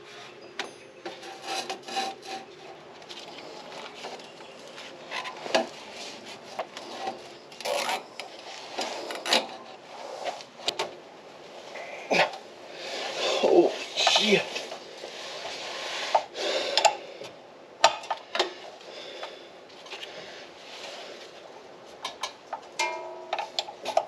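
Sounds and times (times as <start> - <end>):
metal parts scraping and knocking: 0.2 - 10.8.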